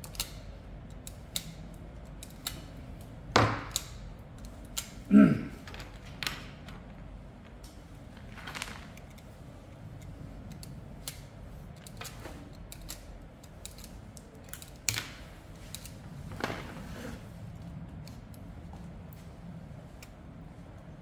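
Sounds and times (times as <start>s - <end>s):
pliers and wire strippers snipping: 0.0s - 5.0s, 10.0s - 16.0s.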